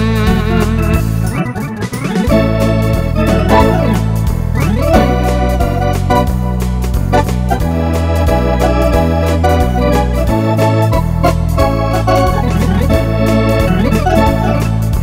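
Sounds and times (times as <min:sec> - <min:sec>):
bass line: 0:00.0 - 0:15.0
drum machine beat: 0:00.0 - 0:15.0
electronic organ chords: 0:00.0 - 0:15.0.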